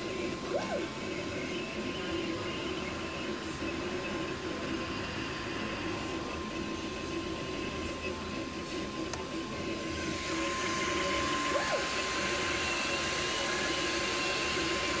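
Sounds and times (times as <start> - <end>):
stepper motors whining: 0.0 - 1.2
fan whir: 0.0 - 15.0.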